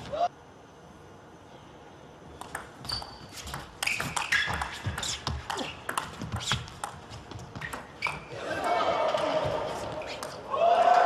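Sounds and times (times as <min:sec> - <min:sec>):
shoes squeaking: 0:02.4 - 0:10.5.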